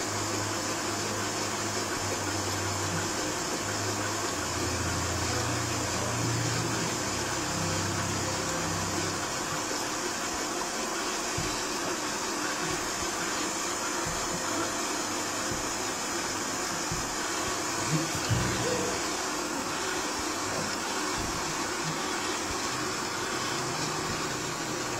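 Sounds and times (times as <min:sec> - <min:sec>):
robot vacuum whirring: 0:07.7 - 0:24.9.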